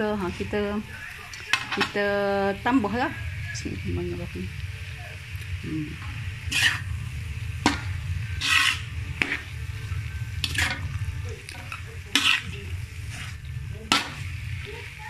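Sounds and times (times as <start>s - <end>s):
light sizzle of frying: 0.0s - 15.0s
metal spatula scraping wok: 6.0s - 15.0s.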